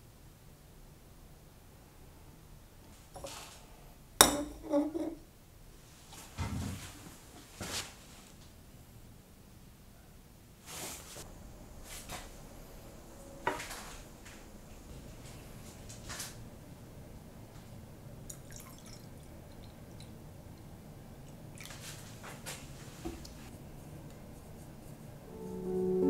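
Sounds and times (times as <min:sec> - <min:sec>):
liquid trickling into cup: 0:18.3 - 0:20.2.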